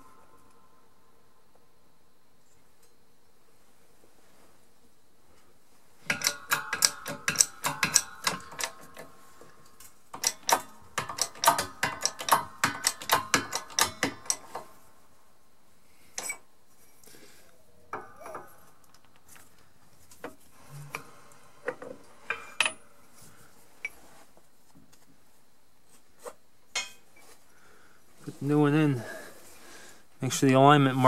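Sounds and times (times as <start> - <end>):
metallic clicks of tools: 6.0 - 14.8.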